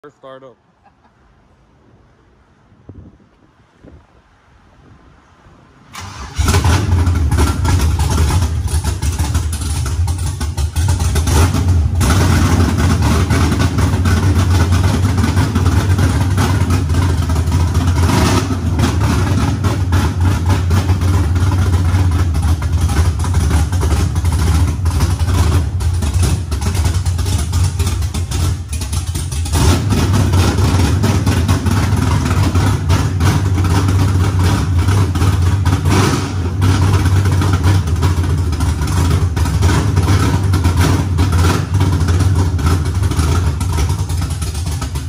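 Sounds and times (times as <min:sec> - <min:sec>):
pickup truck engine starting: 0:05.8 - 0:45.0
pickup truck engine running: 0:05.9 - 0:45.0.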